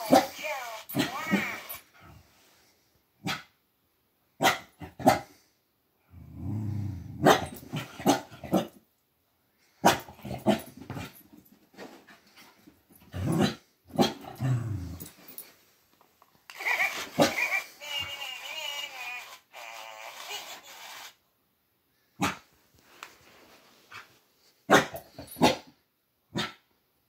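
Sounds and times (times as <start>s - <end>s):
puppy barking: 4.4s - 5.2s, 24.7s - 25.6s.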